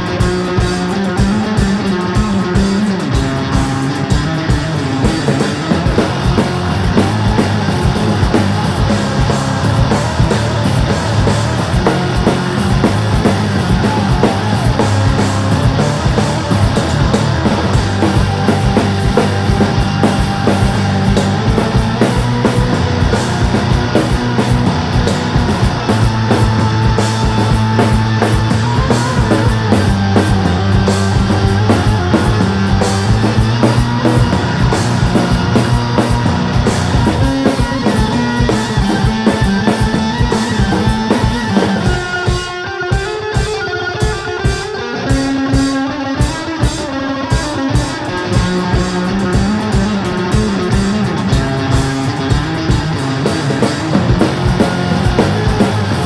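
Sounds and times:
drum kit beat: 0.0 - 56.0
electric guitar: 0.0 - 56.0.

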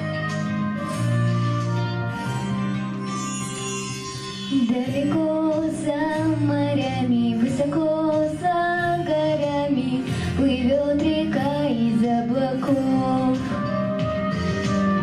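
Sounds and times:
recorded backing track: 0.0 - 15.0
girl singing into a microphone: 4.5 - 14.2.

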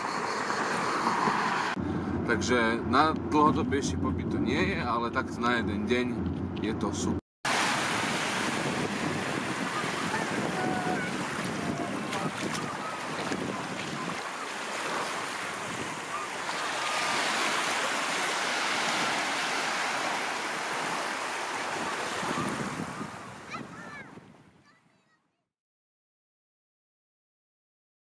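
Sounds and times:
small waves washing over sand: 7.5 - 24.4
wind buffeting microphone: 7.5 - 24.6.

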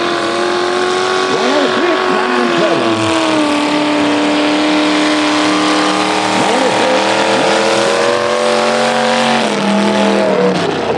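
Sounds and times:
truck engine revving hard: 0.0 - 10.9.

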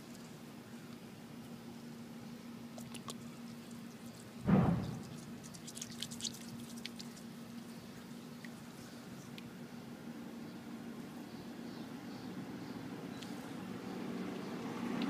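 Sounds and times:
faint steady hum: 0.0 - 15.0
hands squishing wet egg: 2.8 - 7.3
dull thump: 4.4 - 5.2.

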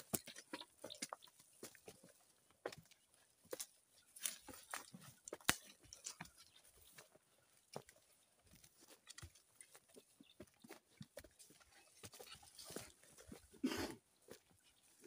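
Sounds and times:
footsteps through dry bush: 0.0 - 15.0
twig snaps: 5.3 - 5.7.

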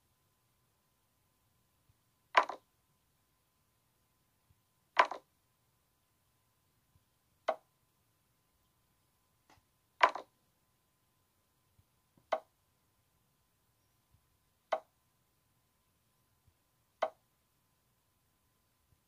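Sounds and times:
short wooden clicks: 2.3 - 2.7, 5.0 - 5.3, 7.4 - 7.7, 9.5 - 10.3, 12.2 - 12.5, 14.7 - 14.9.

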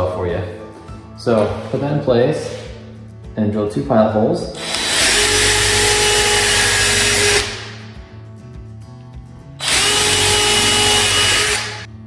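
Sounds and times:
cordless drill whining: 4.6 - 7.8, 9.6 - 11.9.

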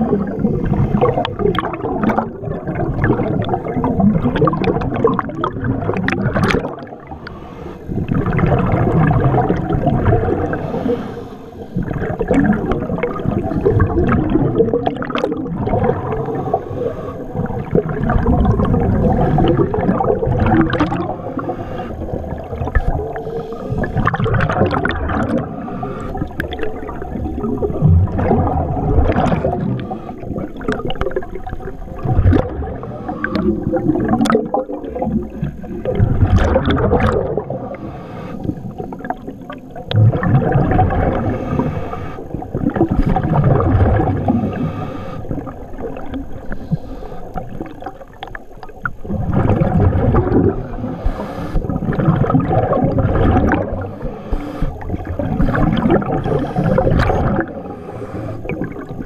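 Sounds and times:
bubbling exhalation underwater: 0.0 - 7.3, 7.9 - 11.0, 11.8 - 37.8, 38.5 - 46.6, 47.3 - 59.0
regulator inhalation: 10.5 - 11.8, 16.2 - 17.4, 21.2 - 24.0, 25.5 - 27.0, 37.6 - 38.7, 41.1 - 42.4, 44.3 - 45.6, 46.4 - 47.5, 50.6 - 51.7, 53.8 - 58.8.

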